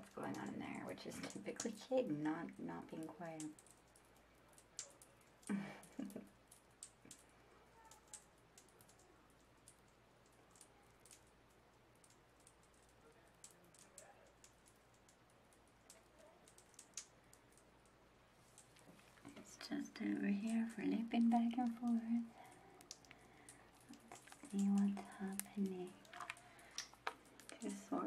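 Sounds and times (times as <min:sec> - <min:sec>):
bath bomb fizzing in water: 0:20.8 - 0:28.0.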